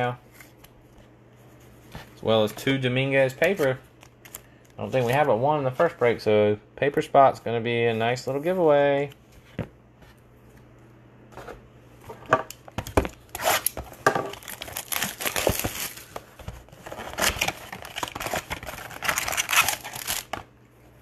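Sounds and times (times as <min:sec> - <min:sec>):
foil packs handled: 0:13.0 - 0:20.4
plastic wrapping crinkling and tearing: 0:13.1 - 0:20.4.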